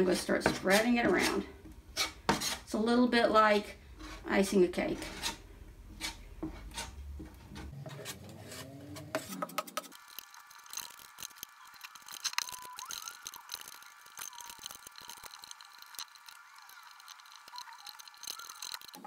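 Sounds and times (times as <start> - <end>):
palette knife scraping and tapping: 2.0 - 2.6.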